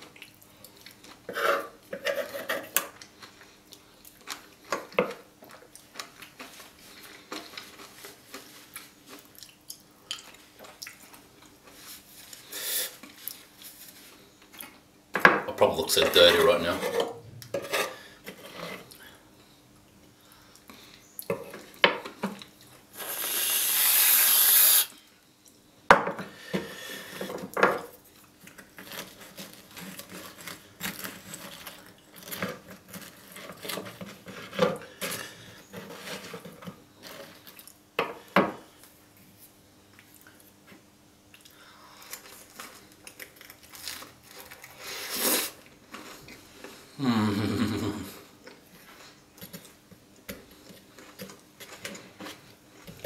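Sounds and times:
cutlery scraping wooden board: 1.3s - 2.9s, 16.0s - 18.9s
chewing crisp waffle: 5.5s - 13.8s
aerosol whipped cream hiss: 23.0s - 24.9s.

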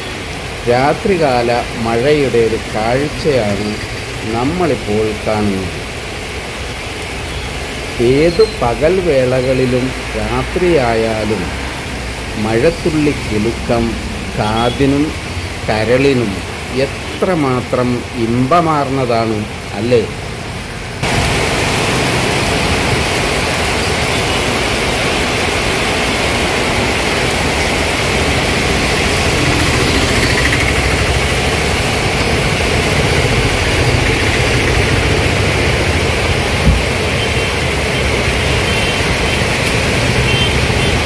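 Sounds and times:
heavy rain pouring: 0.0s - 41.0s
vehicles on wet road: 0.0s - 41.0s
short knock: 36.6s - 37.0s.

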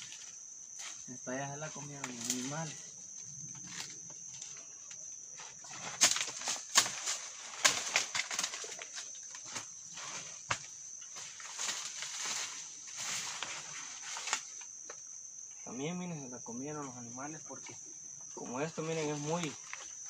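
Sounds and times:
leaves and vines rustling and snapping: 0.0s - 4.6s, 5.6s - 14.8s, 18.7s - 20.0s
high insect drone: 0.0s - 20.0s.

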